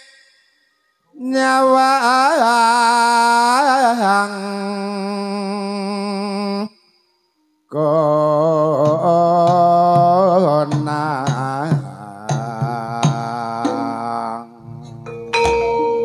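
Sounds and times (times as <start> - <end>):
person singing long held notes: 1.1 - 6.7, 7.7 - 15.3
struck gamelan notes: 13.6 - 16.0.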